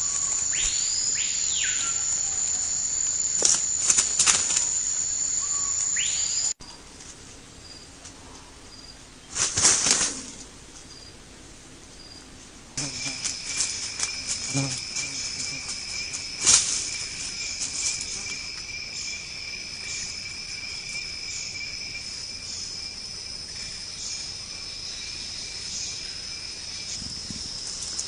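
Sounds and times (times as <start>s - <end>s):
insects shrilling: 0.0s - 6.6s, 12.8s - 28.0s.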